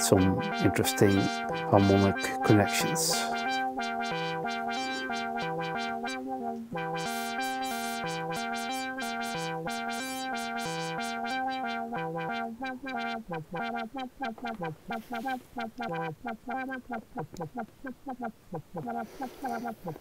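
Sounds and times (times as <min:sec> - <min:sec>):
buzzy synthesizer sequence: 0:00.0 - 0:17.6.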